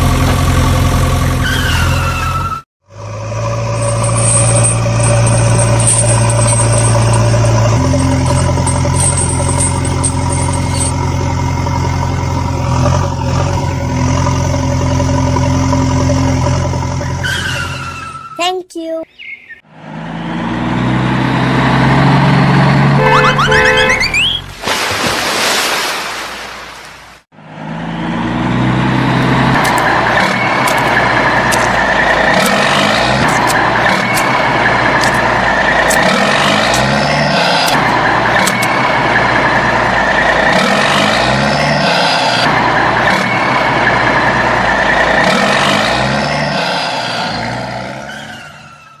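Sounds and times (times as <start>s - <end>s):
large vehicle engine running: 0.0s - 17.3s, 27.4s - 48.8s.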